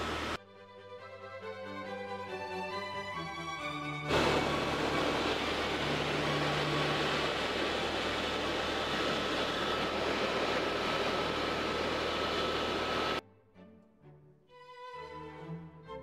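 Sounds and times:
helicopter engine and rotor hum: 0:00.0 - 0:00.4, 0:04.1 - 0:13.2
rushing hiss: 0:00.0 - 0:00.4, 0:04.1 - 0:13.2.

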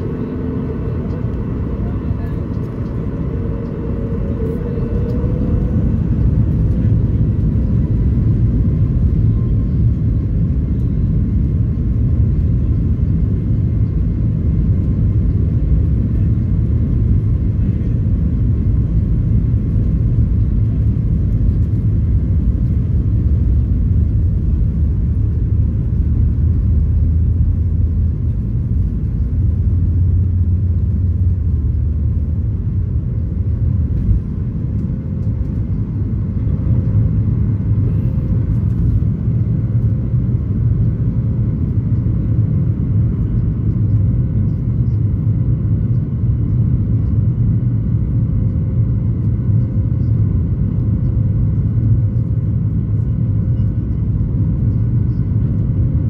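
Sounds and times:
faint rising whine: 0:00.0 - 0:08.1
runway rumble: 0:00.0 - 0:47.0
jet engines roaring: 0:00.0 - 0:52.8.

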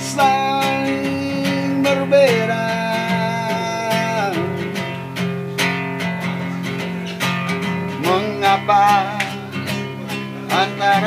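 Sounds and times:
man singing: 0:00.0 - 0:05.0, 0:07.9 - 0:11.0
acoustic guitar strumming: 0:00.0 - 0:11.0.

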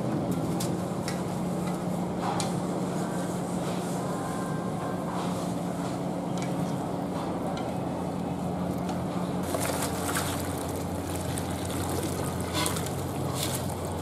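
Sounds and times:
steady low hum: 0:00.0 - 0:14.0
water splashing into colander: 0:09.4 - 0:13.6.

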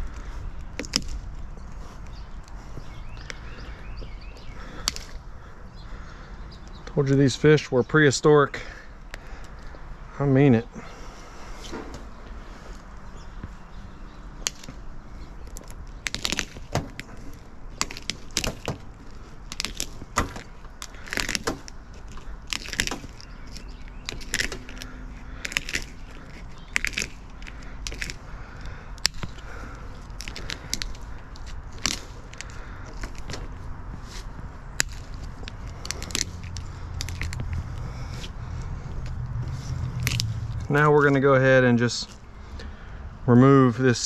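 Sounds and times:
garden shears snipping scales: 0:14.4 - 0:41.3.

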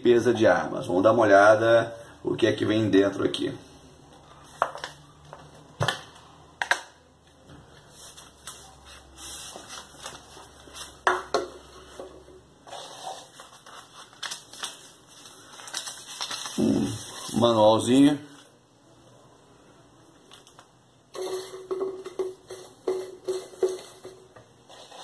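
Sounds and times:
paper and fabric rustling: 0:07.6 - 0:11.0, 0:12.8 - 0:18.5.

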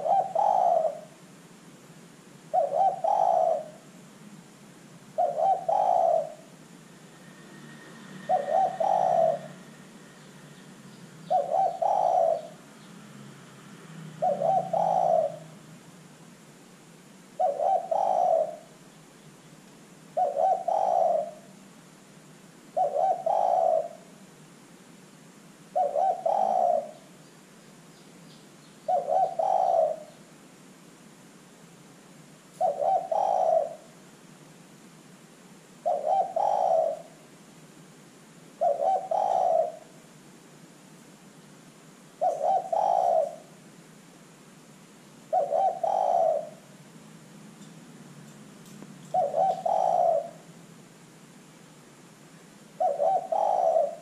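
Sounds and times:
dove cooing: 0:00.0 - 0:01.3, 0:02.5 - 0:04.0, 0:05.1 - 0:06.6, 0:08.0 - 0:10.3, 0:11.2 - 0:12.7, 0:13.9 - 0:15.7, 0:17.3 - 0:18.9, 0:20.1 - 0:21.6, 0:22.7 - 0:24.2, 0:25.7 - 0:27.2, 0:28.9 - 0:30.3, 0:32.5 - 0:34.0, 0:35.8 - 0:37.3, 0:38.6 - 0:40.0, 0:42.1 - 0:43.7, 0:45.2 - 0:46.9, 0:49.0 - 0:50.6, 0:52.8 - 0:54.0
background hiss: 0:00.0 - 0:54.0.

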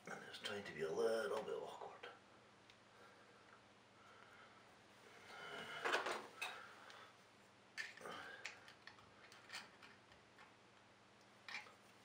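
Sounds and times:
small clicks and scrapes: 0:07.8 - 0:10.6, 0:11.2 - 0:12.0.

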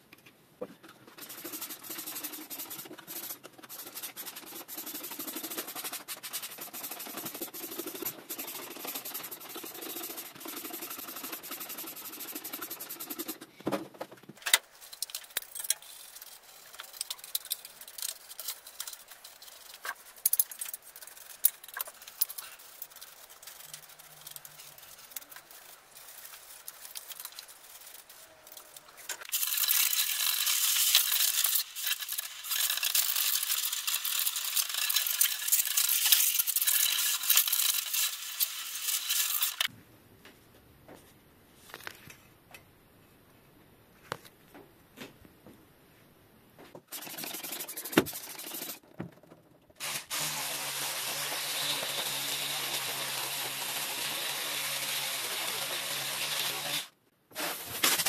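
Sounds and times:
brush scrubbing bicycle frame: 0:01.0 - 0:13.4, 0:14.8 - 0:39.7, 0:46.9 - 0:48.8.

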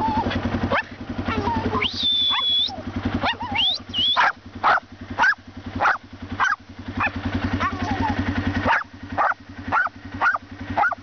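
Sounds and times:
small dog barking: 0:00.2 - 0:02.5, 0:03.2 - 0:11.0
high rising whistles: 0:01.8 - 0:02.8, 0:03.5 - 0:04.3.

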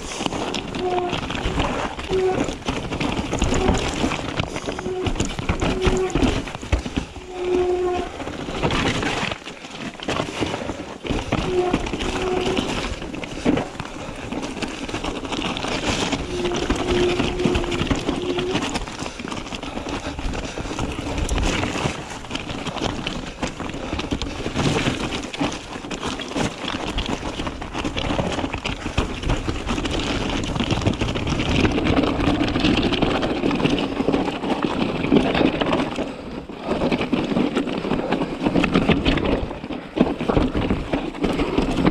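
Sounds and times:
bike knocking on rocks: 0:00.0 - 0:41.9
bike rattling: 0:00.0 - 0:41.9
tyres crunching over loose stones: 0:00.0 - 0:41.9.

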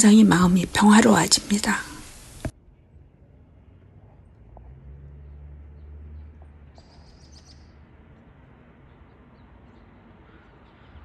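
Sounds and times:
small birds chirping: 0:05.2 - 0:07.9.

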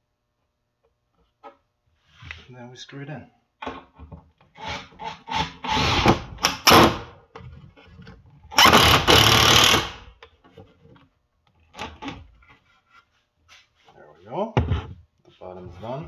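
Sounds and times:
cordless driver driving screws: 0:08.5 - 0:10.0.

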